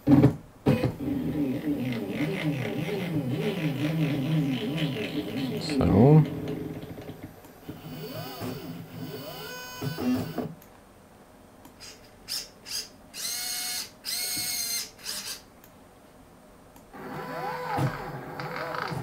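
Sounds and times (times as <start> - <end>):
robot arm stepper motors whining: 0.7 - 5.8, 7.7 - 10.5, 11.8 - 15.4, 17.0 - 19.0.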